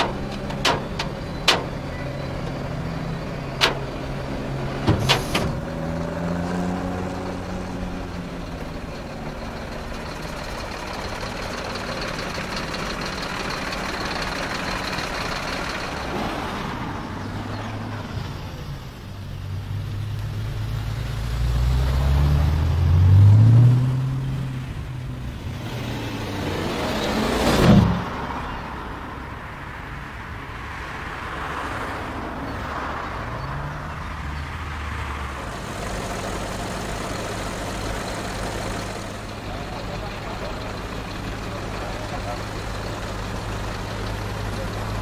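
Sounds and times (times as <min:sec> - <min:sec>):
car engine revving and accelerating: 0:04.4 - 0:08.0, 0:19.5 - 0:24.6, 0:25.5 - 0:28.4.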